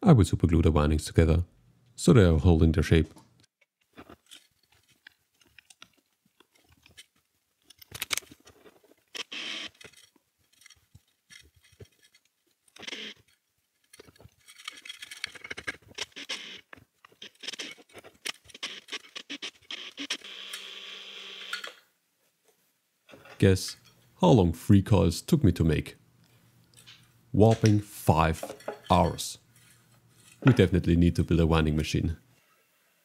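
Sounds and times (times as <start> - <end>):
hands handling drill clicks: 4.0 - 19.8
drill spinning: 9.2 - 10.0.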